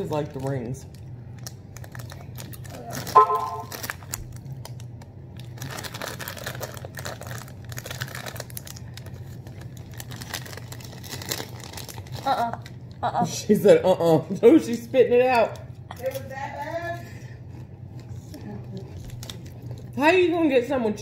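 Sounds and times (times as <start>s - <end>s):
plastic bag crinkling: 0.0s - 12.8s, 18.6s - 20.0s.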